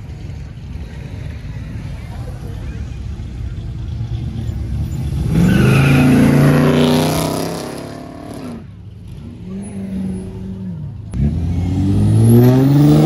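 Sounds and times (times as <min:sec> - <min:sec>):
engines idling rumble: 0:00.0 - 0:05.9, 0:08.0 - 0:11.2.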